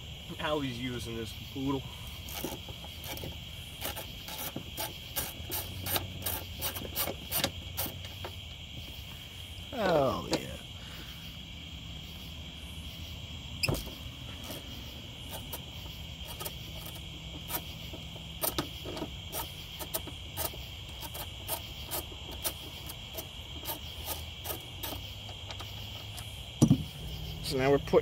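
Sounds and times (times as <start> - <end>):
crickets chirping: 0.0 - 28.0
hand ratchet clicking: 2.2 - 8.2, 16.2 - 26.3.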